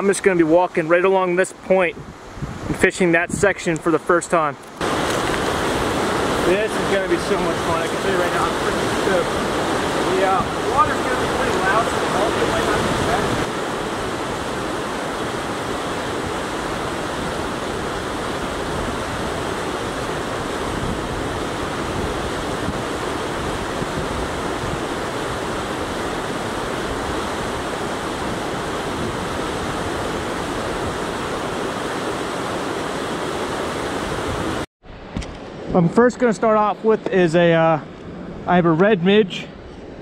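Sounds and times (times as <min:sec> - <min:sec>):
whitewater rapids rushing: 0:04.8 - 0:34.6.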